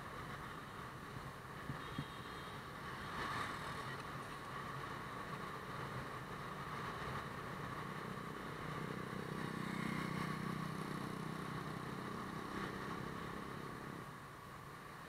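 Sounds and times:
road and wind noise: 0:00.0 - 0:15.0.

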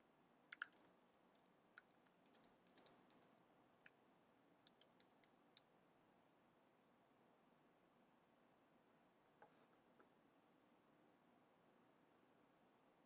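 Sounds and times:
keyboard typing clicks: 0:00.0 - 0:03.3, 0:04.7 - 0:05.3.

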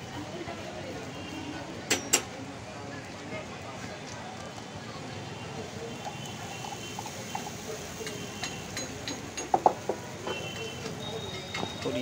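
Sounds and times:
food sizzling in pans: 0:05.6 - 0:10.2.

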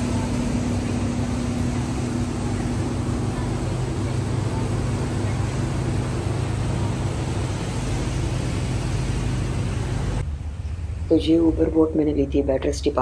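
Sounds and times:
rushing water noise: 0:00.0 - 0:10.2
boat engine drone: 0:00.0 - 0:13.0.

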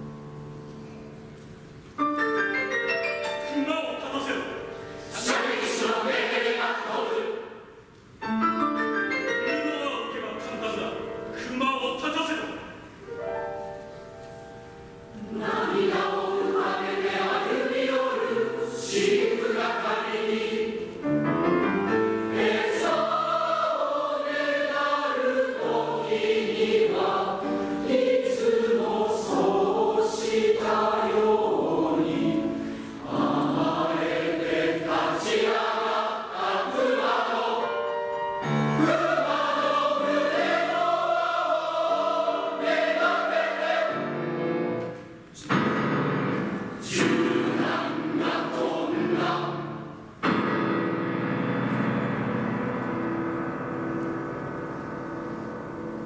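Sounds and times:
mixed choir singing: 0:05.0 - 0:07.8, 0:15.2 - 0:21.3, 0:21.9 - 0:44.7, 0:46.4 - 0:50.1.

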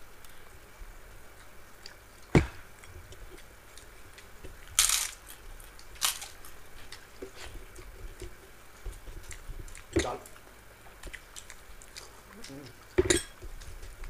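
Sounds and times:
crisp crunches of biting: 0:04.7 - 0:07.1.

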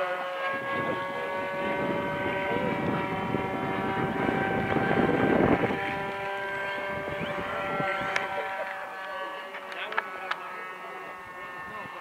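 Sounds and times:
model airplane motor drone: 0:00.0 - 0:12.0
wind on microphone: 0:00.5 - 0:08.6.

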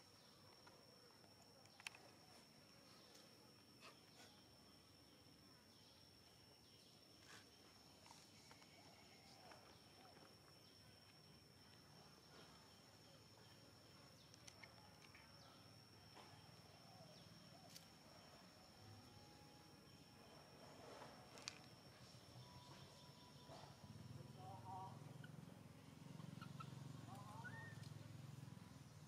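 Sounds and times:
thin steady high tone: 0:15.3 - 0:28.6.

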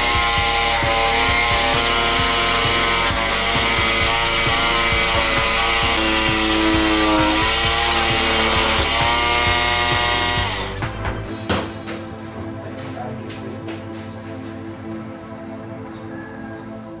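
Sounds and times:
band saw cutting wood: 0:00.0 - 0:12.0
instrumental music with beat: 0:00.0 - 0:17.0.

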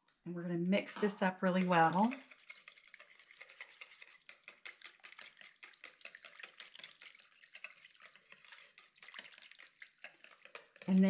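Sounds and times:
whisk scraping plastic bowl: 0:00.8 - 0:11.0.

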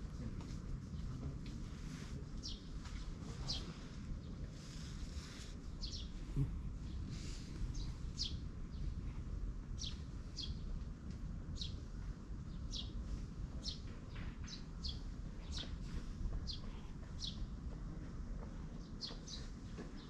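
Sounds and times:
bird chirping: 0:05.8 - 0:06.2, 0:06.9 - 0:08.9, 0:09.8 - 0:10.7, 0:11.6 - 0:11.8, 0:12.5 - 0:13.0, 0:13.6 - 0:17.5, 0:18.8 - 0:20.0.

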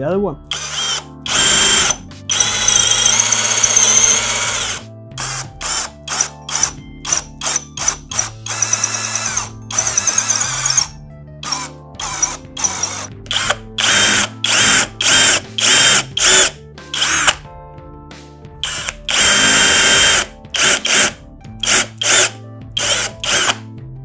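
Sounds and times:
cordless drill whining: 0:00.5 - 0:17.4, 0:18.6 - 0:23.6.

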